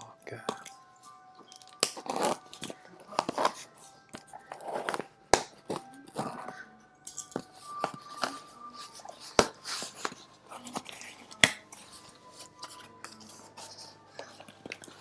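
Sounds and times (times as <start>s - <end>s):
packaging tearing and crinkling: 1.6s - 6.3s.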